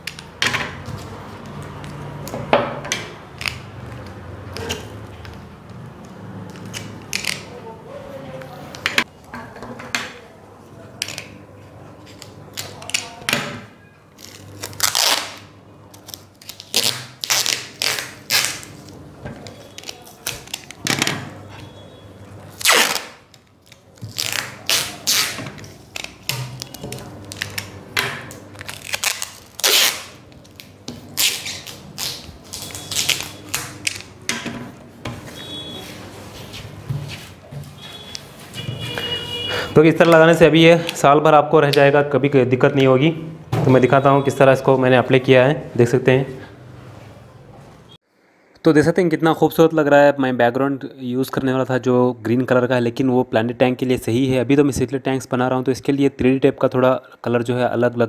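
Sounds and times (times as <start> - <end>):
adhesive tape ripping off roll: 6.5 - 7.6, 12.1 - 13.2, 14.2 - 19.0, 19.6 - 20.8, 22.6 - 34.2.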